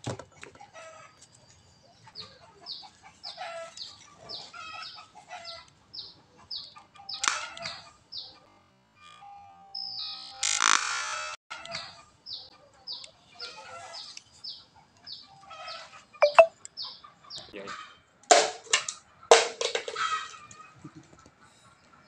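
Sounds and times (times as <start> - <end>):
bird chirping: 16.2 - 17.0.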